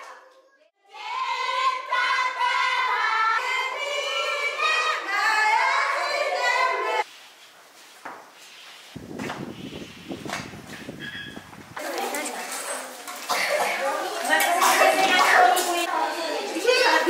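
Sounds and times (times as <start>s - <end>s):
noisy room sound: 0.0s - 17.0s
children singing together: 0.8s - 7.0s.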